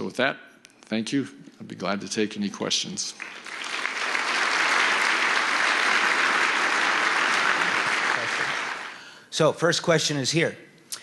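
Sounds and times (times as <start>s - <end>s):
large audience applauding: 3.1s - 9.2s.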